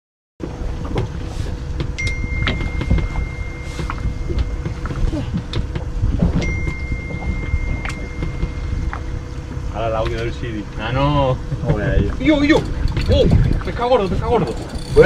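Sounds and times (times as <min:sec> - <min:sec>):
steady hum: 0:00.4 - 0:15.0
wind and water rumble: 0:00.4 - 0:15.0
long high electronic beep: 0:02.0 - 0:05.0, 0:06.4 - 0:09.5.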